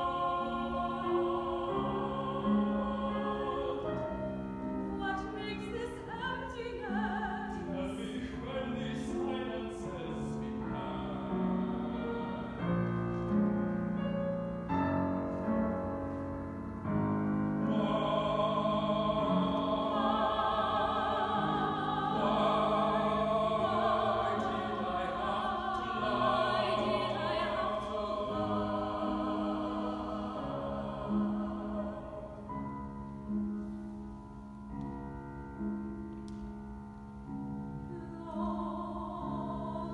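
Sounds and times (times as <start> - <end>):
operatic singing with vibrato: 0.0 - 13.1, 17.6 - 32.5
piano accompaniment: 0.0 - 39.9.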